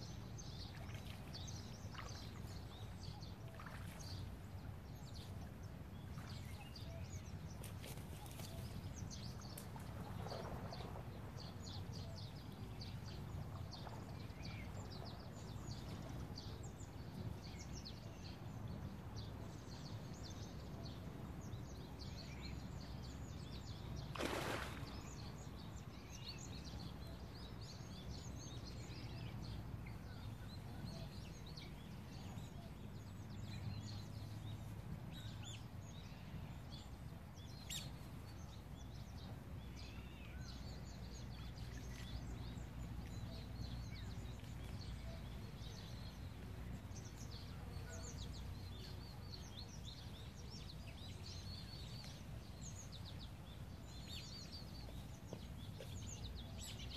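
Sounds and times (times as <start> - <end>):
low outdoor rumble: 24.8 - 56.9.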